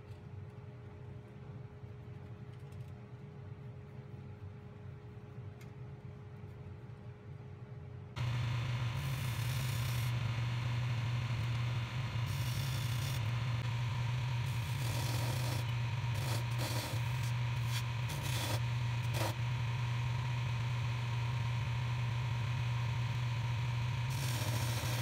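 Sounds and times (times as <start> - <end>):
tool scraping spinning wood: 8.2 - 19.5, 23.9 - 25.0
wood lathe humming: 8.2 - 25.0.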